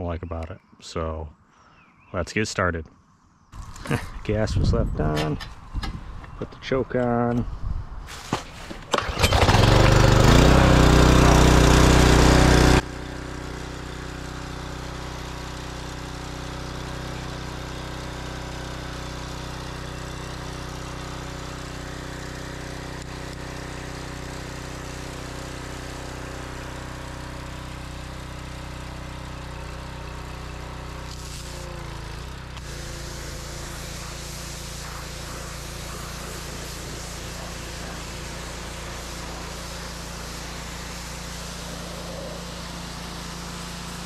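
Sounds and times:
recoil starter tug: 8.2 - 12.8
single-cylinder engine running: 8.9 - 44.0.

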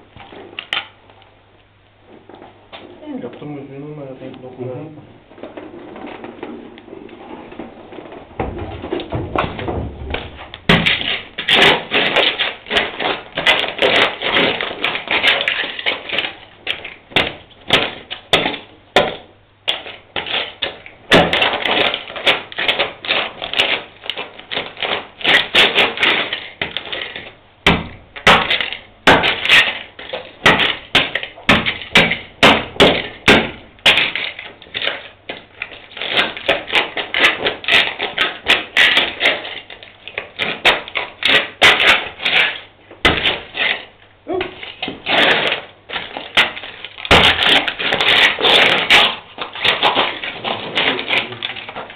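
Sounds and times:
heavy footsteps on concrete: 7.6 - 11.6
boots crunching on broken glass: 8.4 - 51.9.

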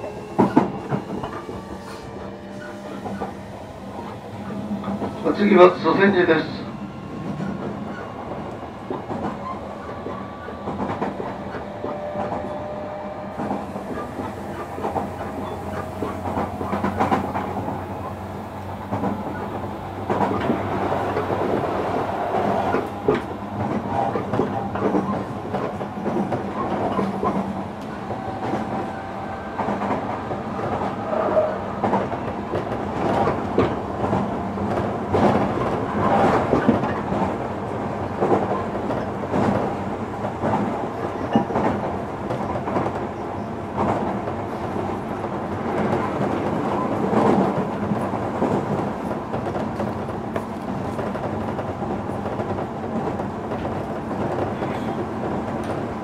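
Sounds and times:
electric train inverter tones: 0.0 - 32.9
train running noise: 0.0 - 56.0.

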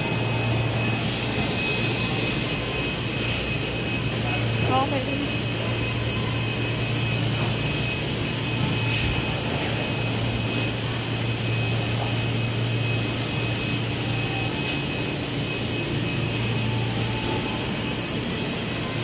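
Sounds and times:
machinery droning: 0.0 - 19.0.

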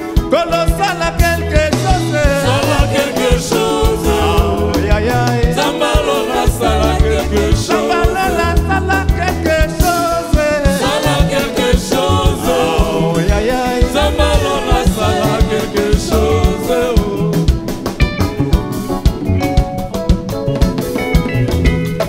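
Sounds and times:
drum kit beat: 0.0 - 22.0
bass line: 0.2 - 22.0
voices singing: 0.4 - 18.0.

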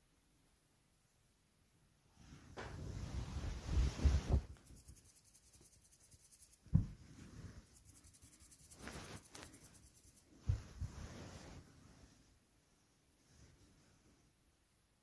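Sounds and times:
scratchy rubbing and rustling: 2.4 - 12.4
soft thuds: 6.6 - 7.3, 10.4 - 11.0.

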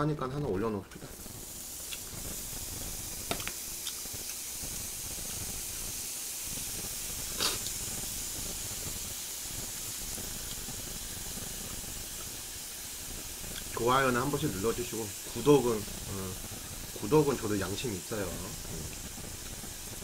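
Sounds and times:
pork sizzling on a grill pan: 0.6 - 20.0
fat spitting: 7.3 - 7.8.

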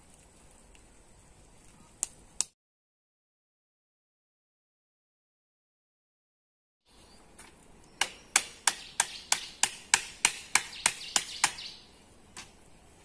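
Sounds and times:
stake being hammered: 8.0 - 11.7.

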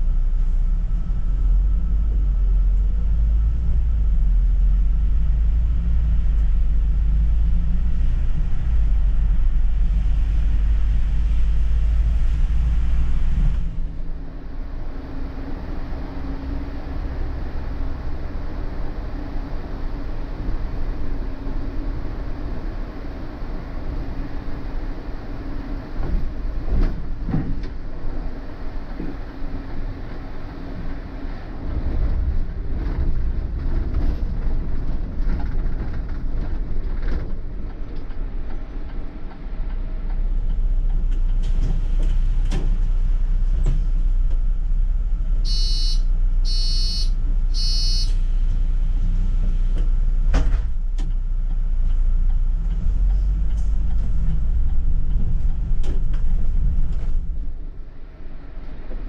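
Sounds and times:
bus engine and road noise: 0.0 - 59.0
short electronic beeps: 45.5 - 48.2.

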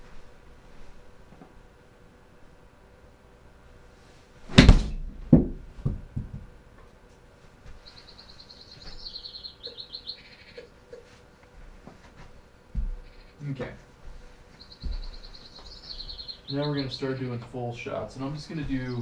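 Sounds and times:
ball smacking into screen: 4.5 - 6.0
club striking golf ball: 4.5 - 6.0
ball bouncing thuds: 4.5 - 6.5
high-pitched chirping: 7.8 - 10.7, 14.6 - 17.4.

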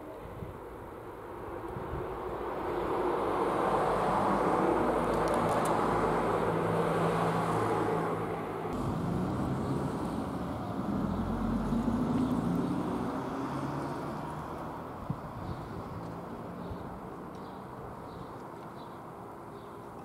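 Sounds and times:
passing vehicle engine rushing: 2.4 - 16.7.

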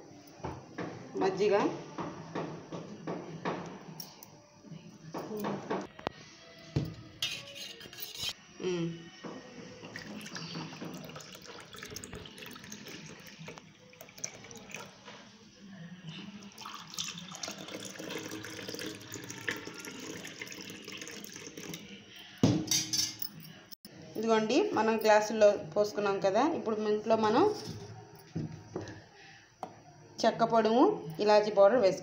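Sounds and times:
liquid pouring and splashing into glasses: 9.8 - 15.3, 16.3 - 22.8.

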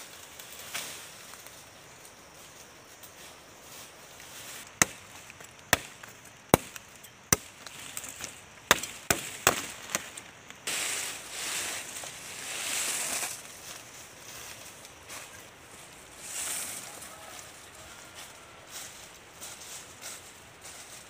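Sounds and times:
palm frond rustling through leaves: 0.0 - 21.0
knife chopping palm stem: 4.8 - 10.1.

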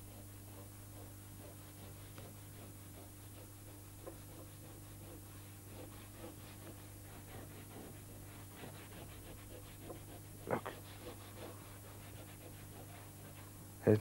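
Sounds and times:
crayon scratching on paper: 0.0 - 13.4
steady low hum: 0.0 - 14.0.

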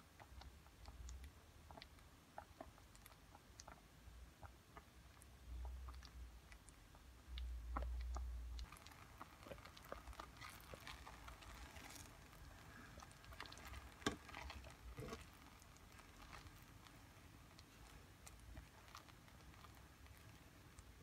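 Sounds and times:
jam bubbling in a pot: 0.0 - 21.0
spatula stirring and scraping: 8.6 - 20.9.

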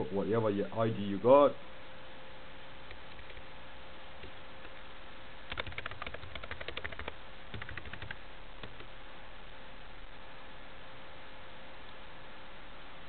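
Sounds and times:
faint hiss with thin hum: 0.0 - 13.0
computer keyboard typing: 2.9 - 3.5, 5.5 - 8.9.

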